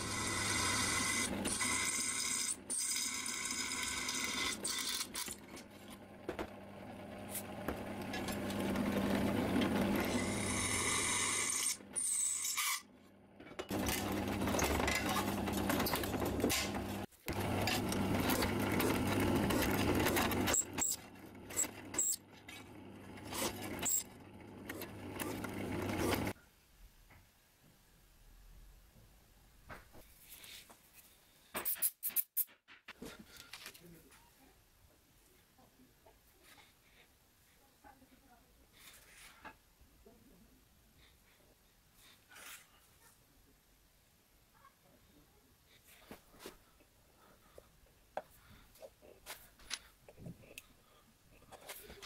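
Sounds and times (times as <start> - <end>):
drill bit scraping metal: 0.0 - 5.4, 9.7 - 12.8
drill press motor hum: 0.0 - 12.5, 13.7 - 26.4.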